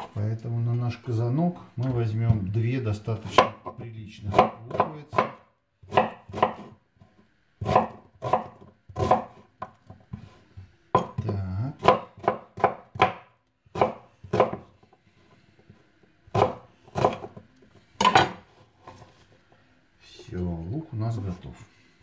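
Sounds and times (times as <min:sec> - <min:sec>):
knife chopping on wooden board: 0:03.2 - 0:06.7, 0:07.6 - 0:10.3, 0:11.0 - 0:14.7, 0:16.3 - 0:17.4.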